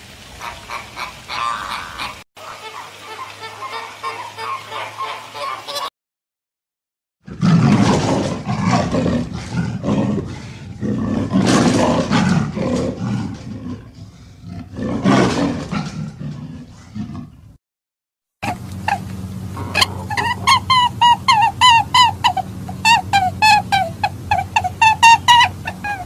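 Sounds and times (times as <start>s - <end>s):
flamingos honking and chattering: 0.2s - 5.9s, 18.4s - 26.0s
big cat growling: 7.3s - 17.4s, 18.5s - 20.9s.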